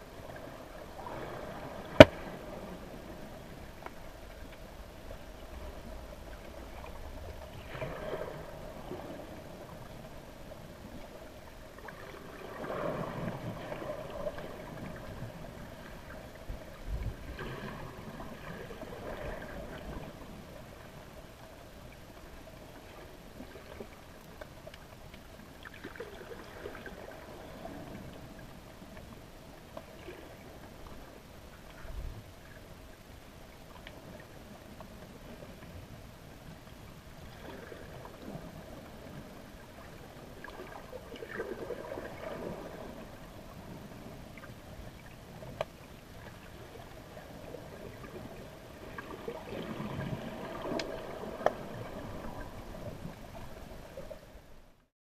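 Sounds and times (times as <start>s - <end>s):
muffled underwater water movement: 0.0s - 54.9s.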